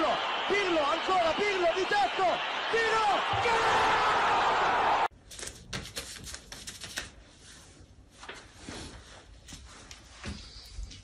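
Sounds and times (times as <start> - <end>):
paper rustling and tapping: 5.3 - 7.2.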